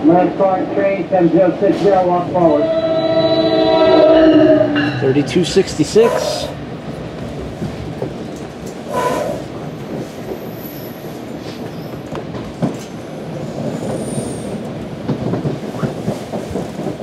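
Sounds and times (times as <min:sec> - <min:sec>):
train car rumbling on rails: 0:00.0 - 0:17.0
wheels squealing: 0:08.9 - 0:09.5.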